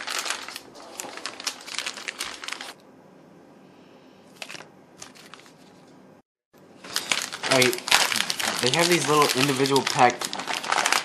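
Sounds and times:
plastic packaging crinkling: 0:00.0 - 0:02.8, 0:04.4 - 0:05.7, 0:06.8 - 0:11.0.

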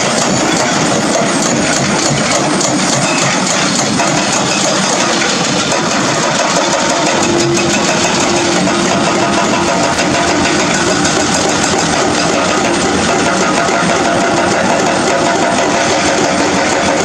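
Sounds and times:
excavator diesel engines running: 0:00.0 - 0:17.0
hydraulic breakers hammering rock: 0:00.0 - 0:17.0.

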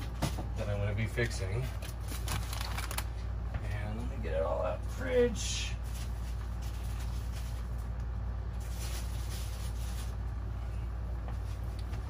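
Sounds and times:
fridge hum: 0:00.0 - 0:12.0
packaging rustling: 0:01.8 - 0:03.1.

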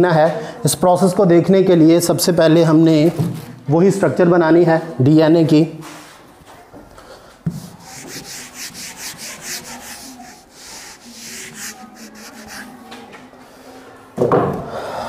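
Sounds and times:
marker scraping on whiteboard: 0:07.5 - 0:13.2.

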